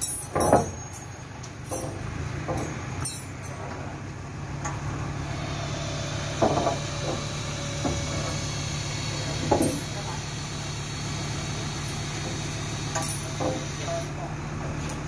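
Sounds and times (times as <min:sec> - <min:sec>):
chains clinking: 0:00.0 - 0:02.0, 0:02.6 - 0:03.6, 0:13.0 - 0:13.3
truck engine running: 0:00.0 - 0:15.0.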